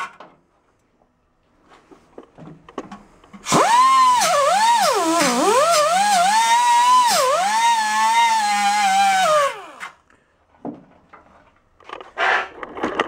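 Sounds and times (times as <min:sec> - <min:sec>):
die grinder whining on metal: 0:03.5 - 0:10.0.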